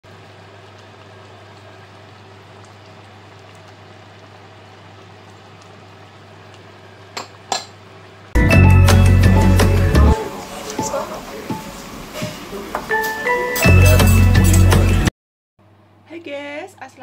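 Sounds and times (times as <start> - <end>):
sauce bubbling in a pan: 0.1 - 8.3.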